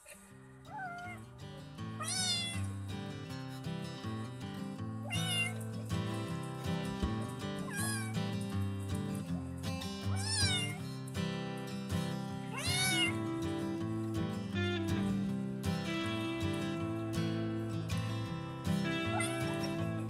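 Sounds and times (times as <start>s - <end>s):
kitten meowing: 0.0s - 1.3s, 2.0s - 2.7s, 5.0s - 5.6s, 7.7s - 8.2s, 10.1s - 10.8s, 12.5s - 13.2s, 19.0s - 20.0s
background music: 11.4s - 20.0s.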